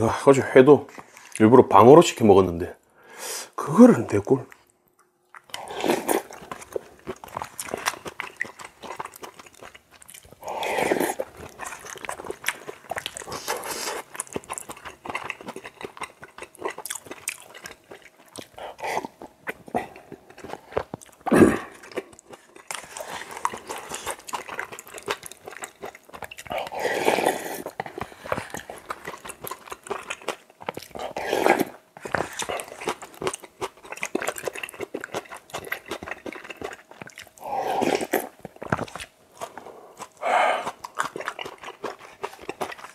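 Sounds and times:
wet chewing: 4.2s - 42.9s
loud noodle slurping: 5.6s - 6.4s, 10.4s - 11.3s, 26.5s - 28.7s, 31.0s - 32.8s, 37.4s - 38.4s.

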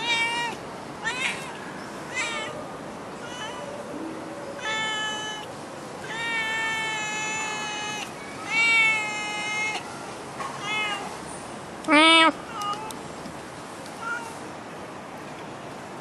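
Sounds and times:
cat meowing: 0.0s - 2.6s, 3.2s - 3.7s, 4.6s - 9.9s, 10.5s - 11.2s, 14.0s - 14.4s.

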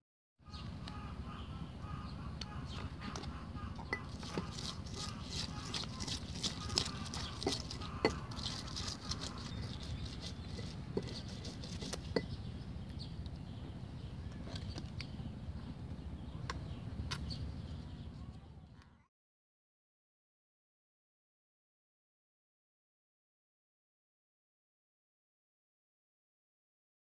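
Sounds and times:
stone pestle grinding in mortar: 3.8s - 12.4s.

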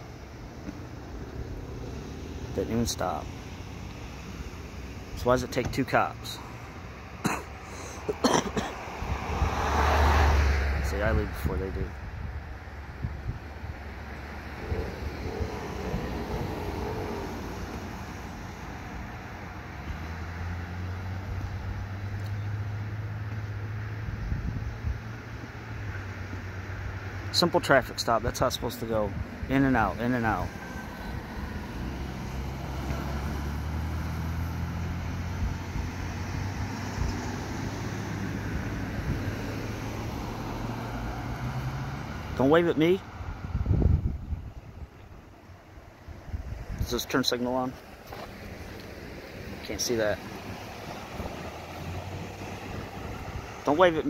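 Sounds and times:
traffic driving past: 0.0s - 54.0s
vehicle engines humming: 0.0s - 54.0s
pickup pulling away: 13.5s - 44.4s, 46.3s - 54.0s.

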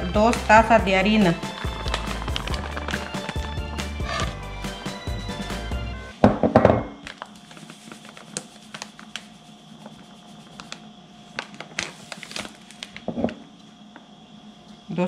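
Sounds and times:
faint steady hum: 6.0s - 15.0s.

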